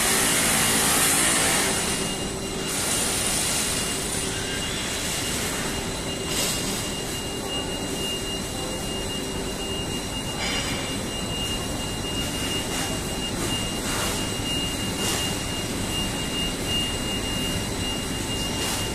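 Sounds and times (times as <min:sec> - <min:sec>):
industrial machinery din: 0:00.0 - 0:08.4
thin high machine whine: 0:00.0 - 0:18.9.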